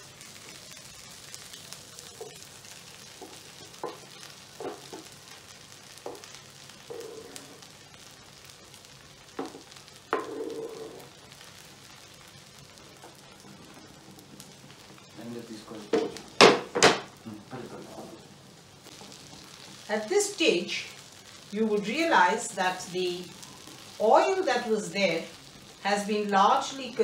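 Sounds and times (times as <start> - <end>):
oil sizzling in a frying pan: 0.0 - 27.0.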